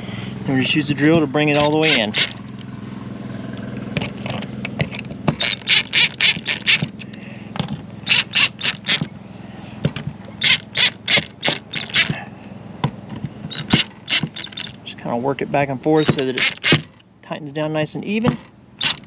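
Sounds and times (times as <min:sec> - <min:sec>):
cordless drill driving screws: 0:01.5 - 0:02.4, 0:05.3 - 0:07.0, 0:08.0 - 0:09.1, 0:10.4 - 0:12.1, 0:13.5 - 0:14.8, 0:16.0 - 0:17.0, 0:18.3 - 0:19.0.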